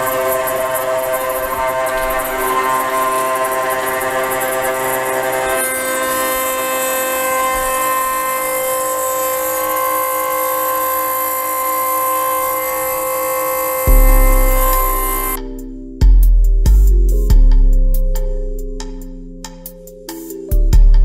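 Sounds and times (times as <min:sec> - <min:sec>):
cutting hiss: 0:00.0 - 0:15.4
router spindle machining whine: 0:00.0 - 0:15.4.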